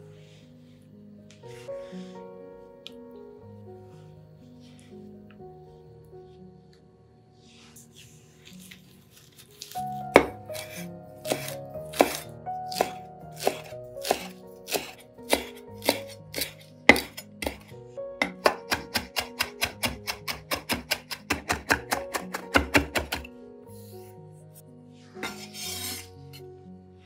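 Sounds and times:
background music: 0.0s - 27.0s
knife chopping on cutting board: 9.2s - 23.3s.

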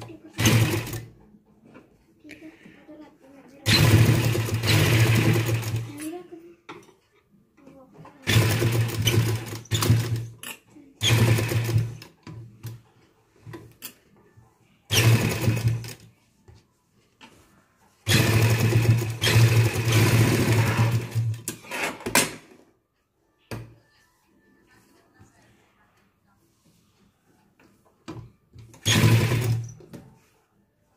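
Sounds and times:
sewing machine stitching: 0.0s - 1.2s, 3.6s - 6.1s, 8.2s - 12.8s, 14.9s - 16.1s, 18.0s - 22.2s, 28.7s - 29.8s.

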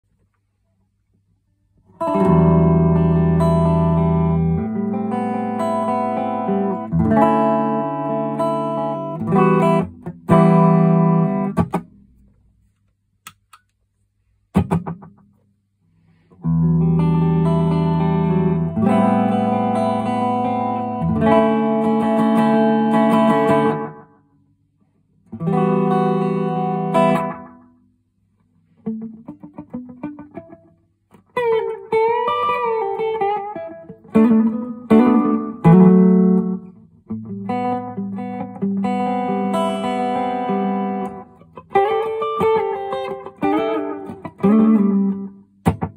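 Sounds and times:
electric guitar chords: 2.0s - 12.2s, 16.3s - 24.2s, 25.3s - 27.7s, 28.8s - 45.9s.

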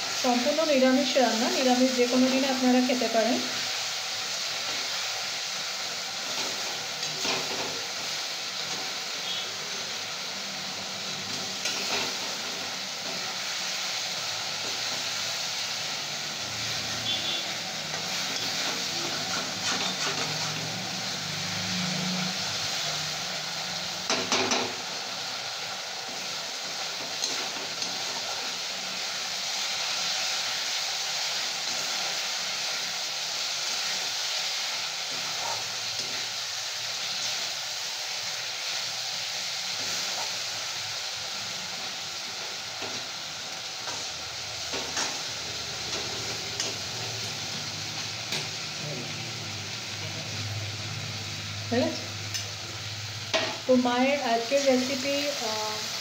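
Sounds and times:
beans sizzling in a wok: 0.0s - 56.0s
metal spatula scraping a wok: 11.3s - 12.6s, 16.8s - 20.9s, 27.1s - 28.4s, 35.1s - 36.3s.

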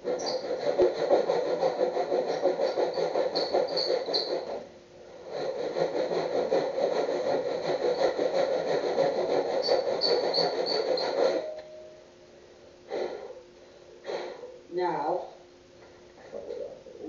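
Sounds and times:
hand plane shaving wood: 0.0s - 11.5s.

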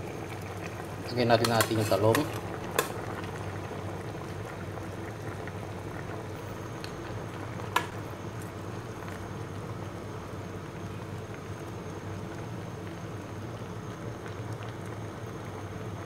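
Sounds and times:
broth boiling in a pot: 0.0s - 16.0s.

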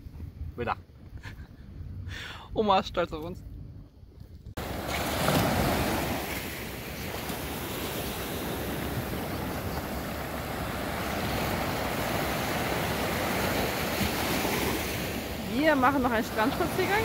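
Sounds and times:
small waves breaking on shore: 4.6s - 17.0s.

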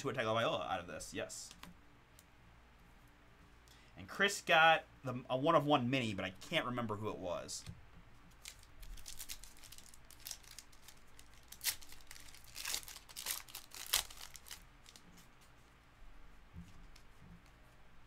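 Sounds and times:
foil wrappers tearing and crinkling: 8.3s - 15.1s.

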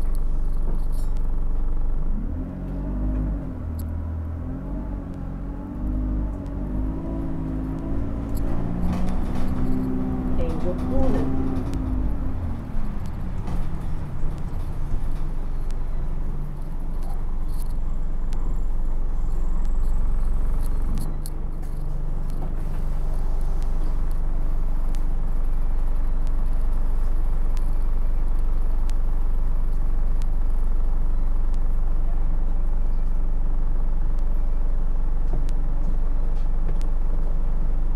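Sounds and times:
bus engine and road drone: 0.0s - 37.9s
light rattles and clicks: 7.2s - 18.5s.

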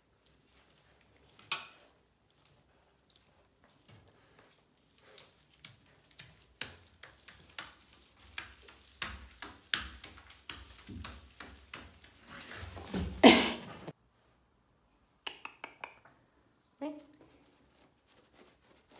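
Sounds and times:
puppy claws scrabbling on bathtub: 3.7s - 13.9s.

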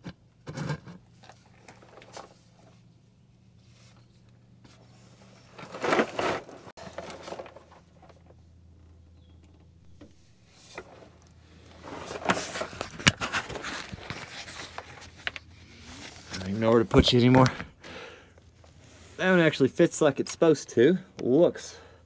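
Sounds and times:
rustling and scraping: 0.0s - 9.0s, 9.9s - 17.6s.

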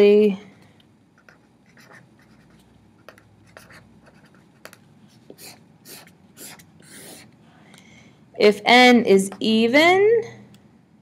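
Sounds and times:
marker scratching on paper: 1.2s - 7.3s.

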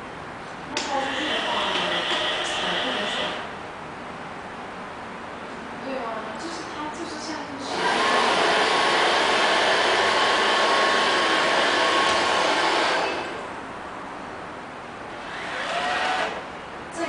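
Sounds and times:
robot vacuum fan whirring: 0.7s - 3.6s, 7.6s - 13.6s, 15.1s - 16.5s.

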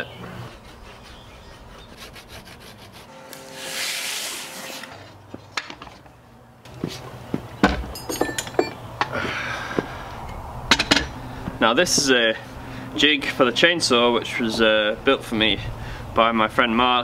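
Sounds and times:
scrape against wood: 0.3s - 6.0s.

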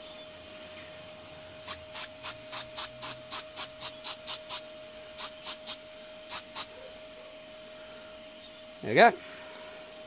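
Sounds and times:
spray can hissing squirts: 1.7s - 4.6s.

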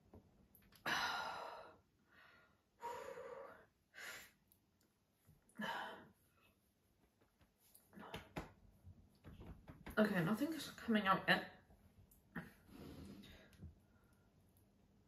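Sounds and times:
woman breathing heavily and sighing: 0.8s - 4.6s, 5.4s - 6.6s.

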